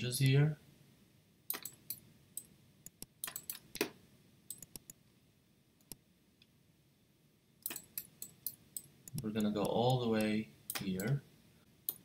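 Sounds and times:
computer mouse clicking: 1.5 - 3.9, 4.5 - 5.0, 7.6 - 11.2.

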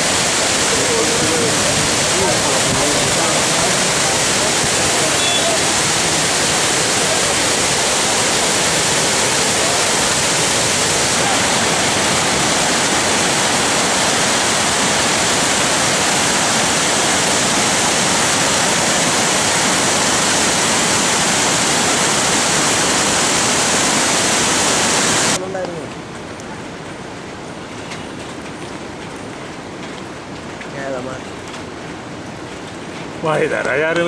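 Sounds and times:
waterfall rushing: 0.0 - 25.4.

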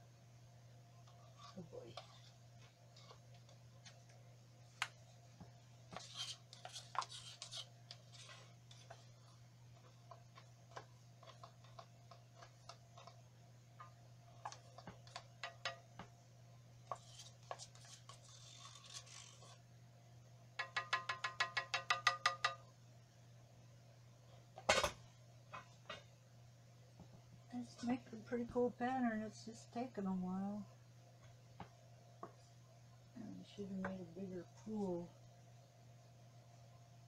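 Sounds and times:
gloved hands handling paint cups: 1.0 - 16.2, 16.8 - 19.6.

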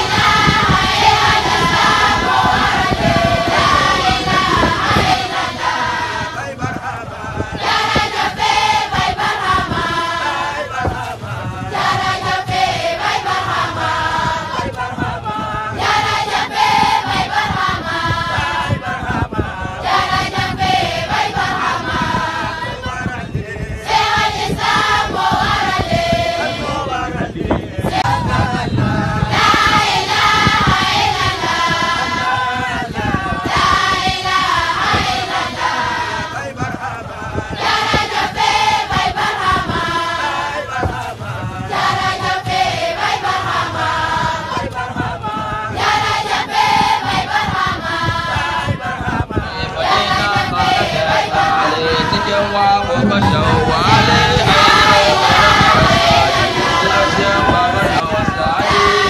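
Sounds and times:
group chanting in unison: 0.0 - 59.0.

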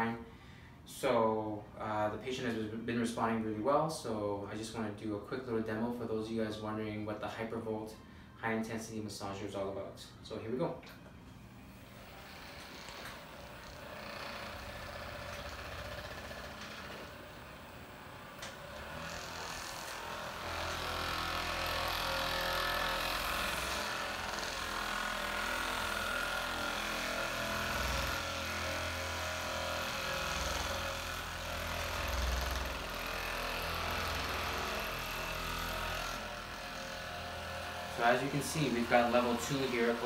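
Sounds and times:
percussion massagers buzzing and hammering: 10.9 - 40.0.

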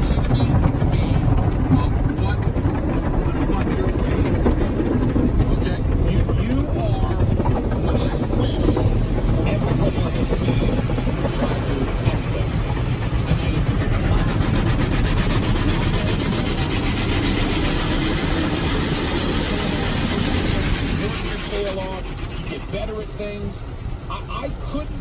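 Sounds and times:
wash brushes rubbing on car: 13.2 - 23.0.

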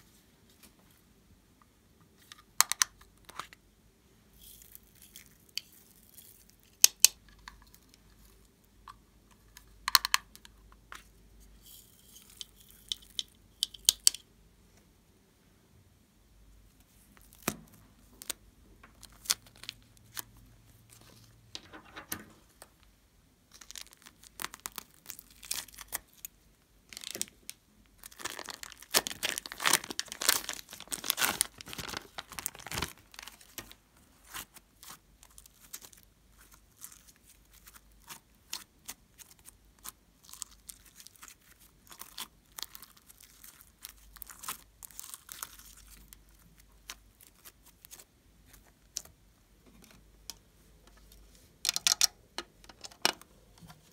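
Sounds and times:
plastic bag crinkling and tearing: 23.5 - 26.2, 26.9 - 39.5, 40.2 - 48.0
slime crackling and squishing: 23.5 - 26.3, 28.0 - 49.1.

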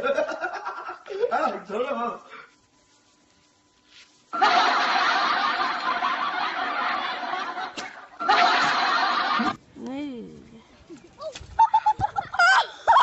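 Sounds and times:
loud dense laughter: 4.4 - 9.6.

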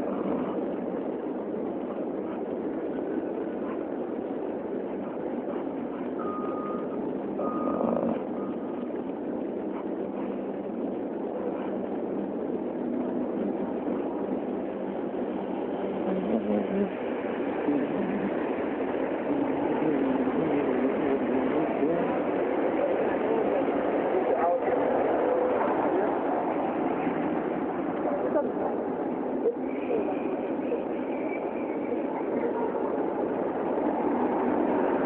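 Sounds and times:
city street traffic noise: 0.0 - 35.0
vehicle backup alarm beeping: 6.2 - 8.8.

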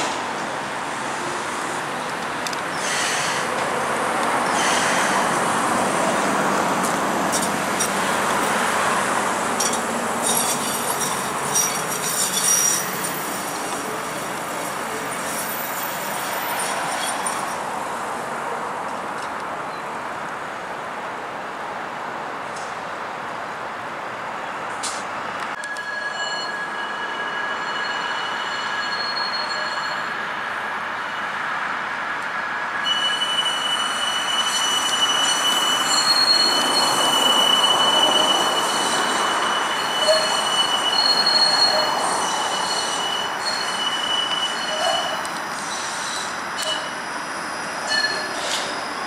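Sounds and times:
streetcar wheels squealing: 2.4 - 3.8, 4.4 - 5.5, 9.5 - 17.6, 25.6 - 31.4, 32.8 - 49.0.

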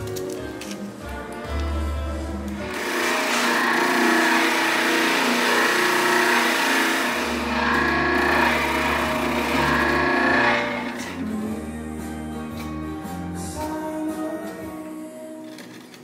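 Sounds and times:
router cutting wood: 2.7 - 11.3.

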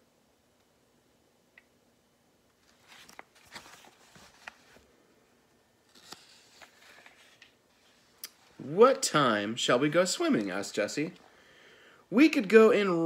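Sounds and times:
book pages rustling and turning: 2.5 - 5.0, 5.8 - 9.1.

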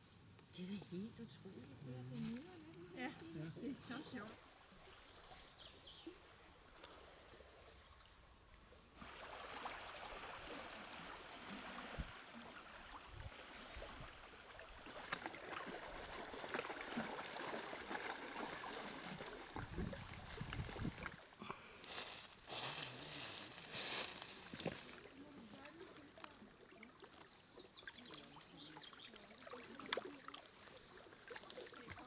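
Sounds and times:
small waves lapping on stones: 8.9 - 32.0.

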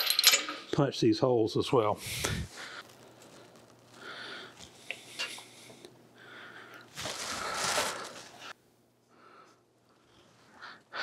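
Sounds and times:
man breathing heavily: 2.0 - 8.5.

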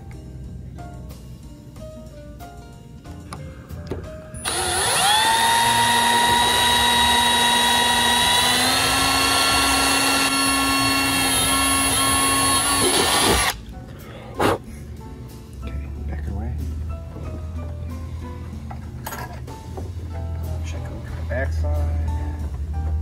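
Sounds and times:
cordless drill whine: 4.4 - 13.6.

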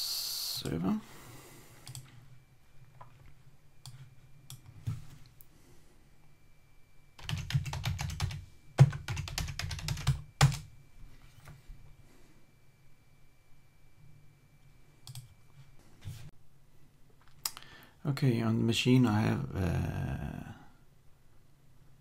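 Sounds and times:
typing on computer keyboard: 7.2 - 10.7.

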